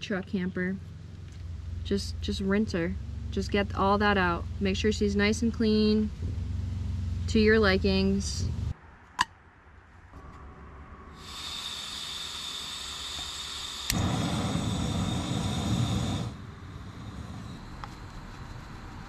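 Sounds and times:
gas hissing from stove valve: 0:11.1 - 0:18.2
burner flame rumble: 0:13.8 - 0:19.0.

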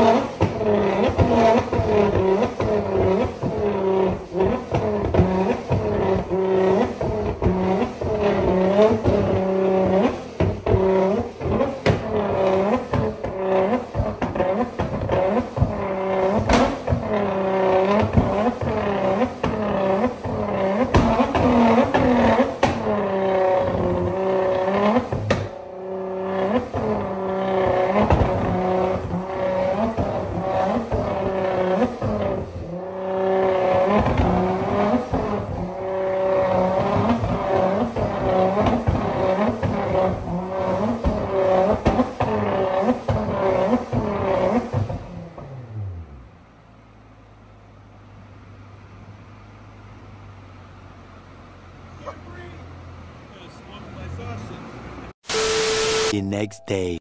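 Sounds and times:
exhaust bangs: 0:00.0 - 0:45.9
car engine revving: 0:00.0 - 0:46.6.

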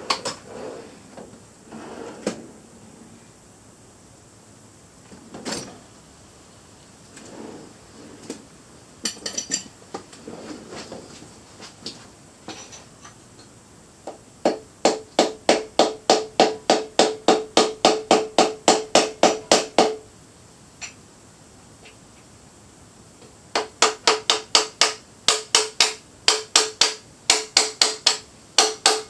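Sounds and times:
metal tools clinking: 0:09.0 - 0:09.8.

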